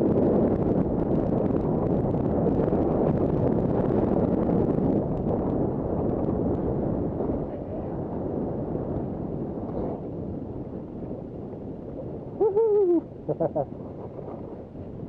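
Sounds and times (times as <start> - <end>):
wind rushing over microphone: 0.0 - 15.0
person whooping: 12.4 - 13.1.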